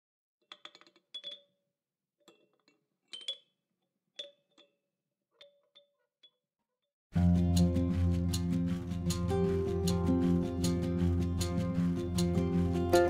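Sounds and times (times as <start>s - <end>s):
light tapping and clinking: 2.2s - 3.5s.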